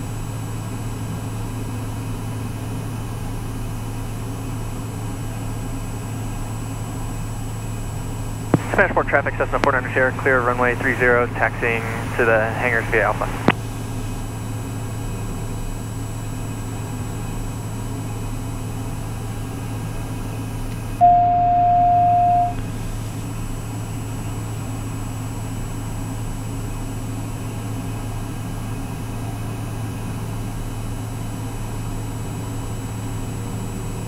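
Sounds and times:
turboprop engine droning: 0.0 - 34.0
loud electronic beep: 21.0 - 22.6.

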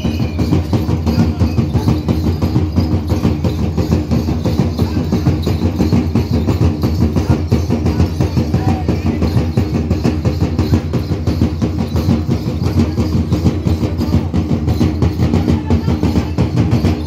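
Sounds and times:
drums beaten in fast rhythm: 0.0 - 17.0.

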